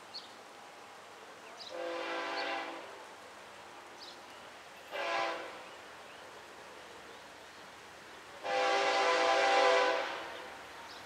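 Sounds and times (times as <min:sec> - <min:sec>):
locomotive air horn blast: 0:01.7 - 0:02.9, 0:04.9 - 0:05.6, 0:08.4 - 0:10.4.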